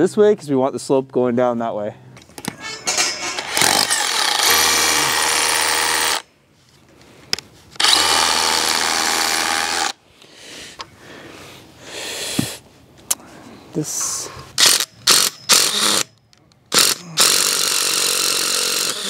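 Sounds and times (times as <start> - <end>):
drill drilling into concrete: 3.5 - 6.2, 7.8 - 10.0, 14.6 - 16.1, 16.7 - 19.0.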